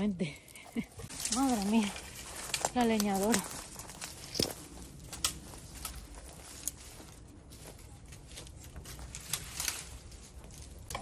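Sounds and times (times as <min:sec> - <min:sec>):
dry branches crackling and snapping: 0:00.5 - 0:11.0.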